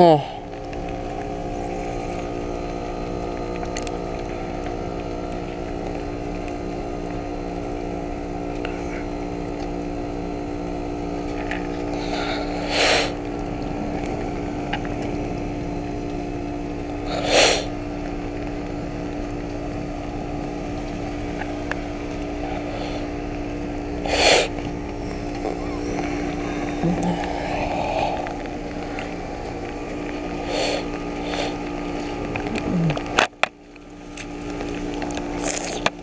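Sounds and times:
heat pump humming: 0.0 - 36.0.

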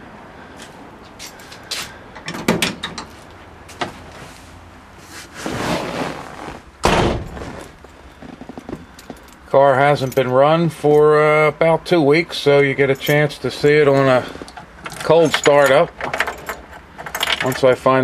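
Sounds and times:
rustling: 3.1 - 9.4
car door shutting: 6.8 - 8.8.

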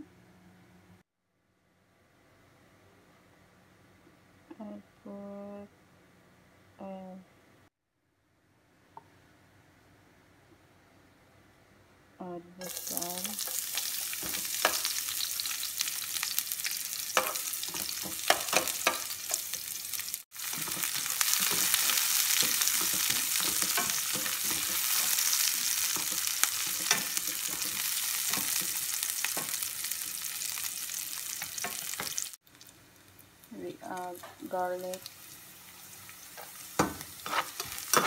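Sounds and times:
onions sizzling in oil: 12.6 - 38.0
spatula scraping a pan: 20.5 - 29.6, 36.4 - 38.0.

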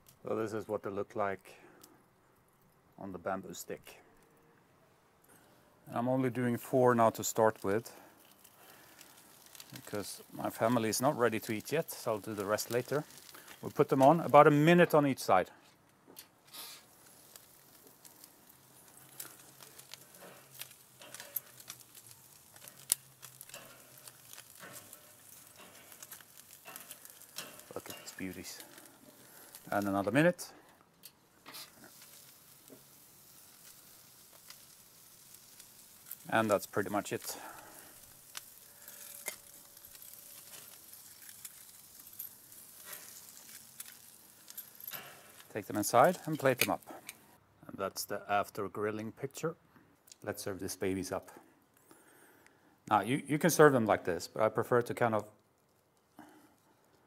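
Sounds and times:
fish sizzling on grill: 6.5 - 15.4, 16.4 - 30.6, 31.2 - 47.4
sharp ticks and crackles: 7.1 - 15.0, 16.8 - 47.2
metal tongs clicking on grate: 19.2 - 28.8.

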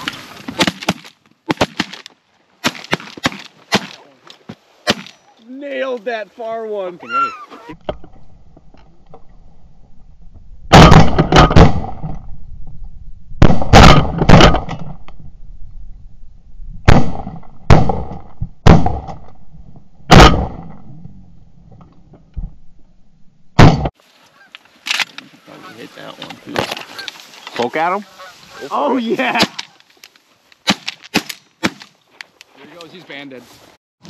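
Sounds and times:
shotgun blasts: 4.8 - 5.2, 10.7 - 12.2, 13.4 - 14.9, 16.8 - 19.3, 20.1 - 20.8, 23.6 - 23.9
geese honking: 24.2 - 24.7, 25.4 - 26.2, 26.8 - 29.0.

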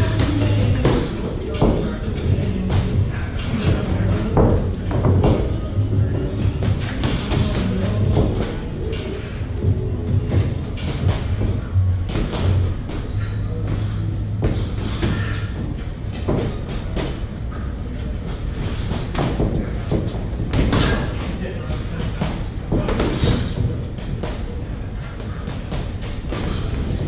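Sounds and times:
footwork on ring canvas: 0.0 - 27.0
music with a beat: 5.0 - 11.6
boxing gloves thudding: 10.1 - 13.1.

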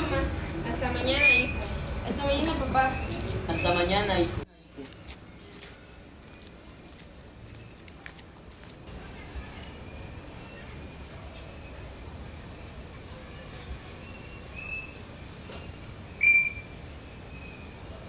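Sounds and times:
crickets chirping: 0.0 - 18.0
loud high-pitched chirp: 1.0 - 1.8, 16.1 - 17.7.

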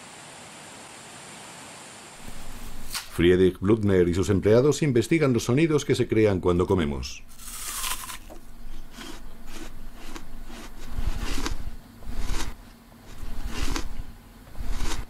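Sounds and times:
person chewing crunchy food: 7.3 - 15.0.

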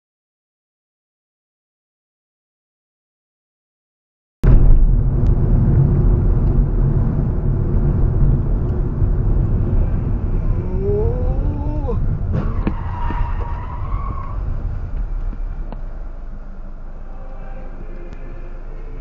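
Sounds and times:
car road and engine rumble: 4.4 - 19.0
steady high tone: 15.9 - 19.0.

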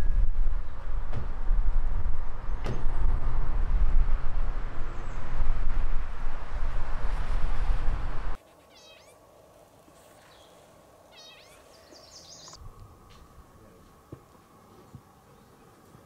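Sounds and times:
wind rumbling on microphone: 0.0 - 8.4
high chattering bird call: 8.5 - 9.2, 11.1 - 12.6
songbirds singing: 8.5 - 9.2, 10.2 - 12.6.

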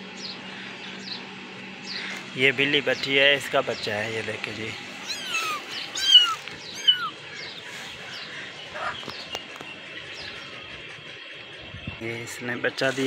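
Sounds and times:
kitten mewing: 5.0 - 7.2.

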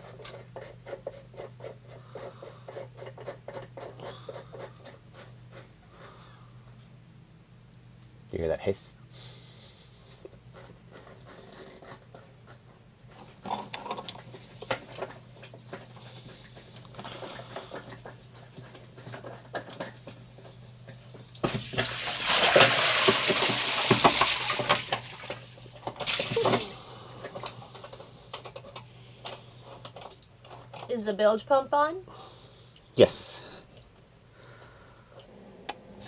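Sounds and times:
water splash: 21.7 - 25.4
seawater gushing up through hole: 21.8 - 25.2.

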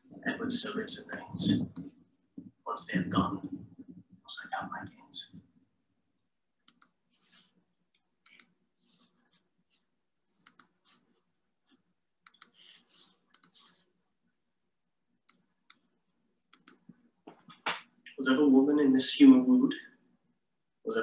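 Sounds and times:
computer mouse clicks: 6.6 - 9.1, 10.3 - 11.0, 12.2 - 13.9, 15.2 - 15.9, 16.5 - 17.6.

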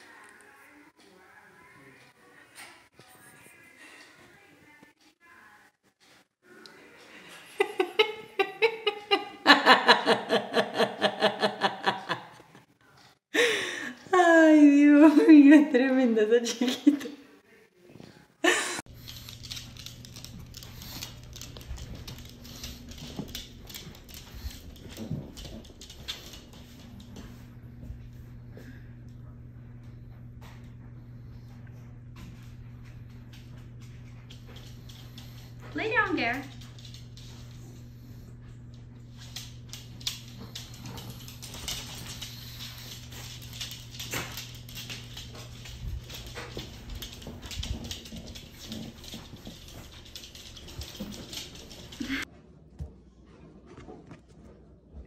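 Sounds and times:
steady low hum: 18.9 - 53.2
dog claws clicking on hardwood floor: 19.0 - 27.0, 39.2 - 52.1.

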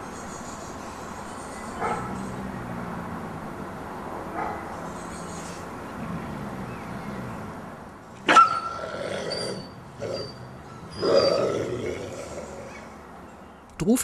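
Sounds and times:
wolf yelping: 8.2 - 12.9.

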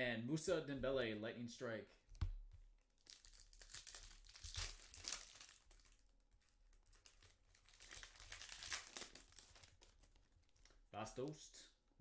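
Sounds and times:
foil wrapper crinkling and tearing: 3.0 - 10.7.

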